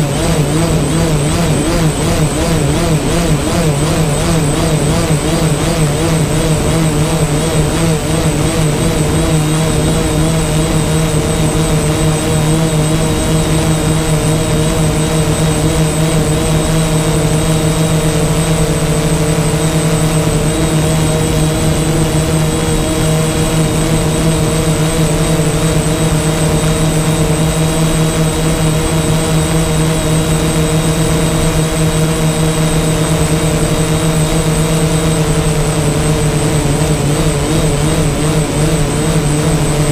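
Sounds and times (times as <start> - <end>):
drone propellers whining: 0.0 - 39.9.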